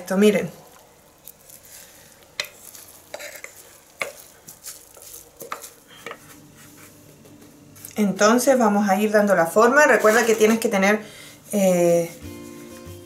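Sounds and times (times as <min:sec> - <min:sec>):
hands handling dough: 0:01.2 - 0:08.0
wooden spoon scraping glass bowl: 0:01.5 - 0:06.9.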